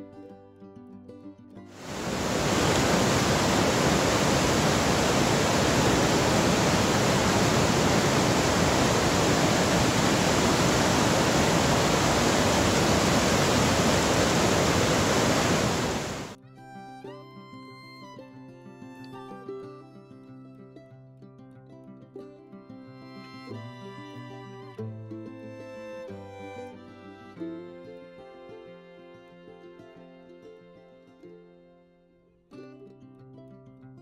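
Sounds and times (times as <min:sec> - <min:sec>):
river water rushing over rapids: 0:01.8 - 0:16.4.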